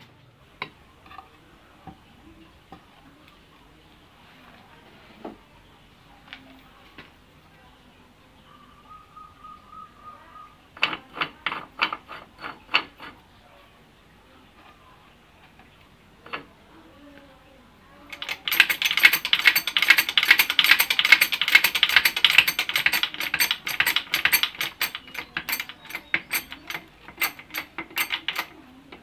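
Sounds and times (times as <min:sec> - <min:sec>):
screw press metallic clicking: 0:18.1 - 0:29.0.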